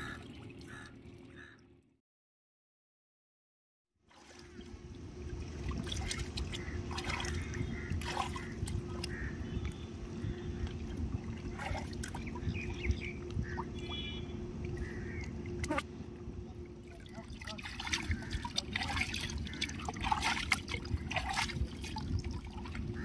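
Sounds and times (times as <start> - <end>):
small water splashes: 0.0 - 1.6, 4.1 - 15.9, 16.5 - 23.0
river water lapping: 0.0 - 1.8, 4.1 - 23.0
low hum and rumble: 0.0 - 2.0, 4.1 - 23.0.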